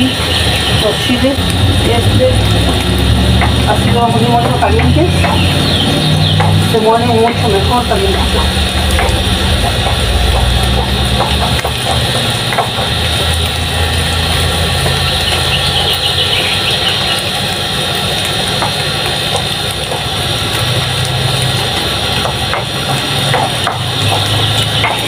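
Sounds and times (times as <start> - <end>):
low mechanical hum: 0.0 - 25.0
stone pestle grinding and knocking: 8.1 - 13.2.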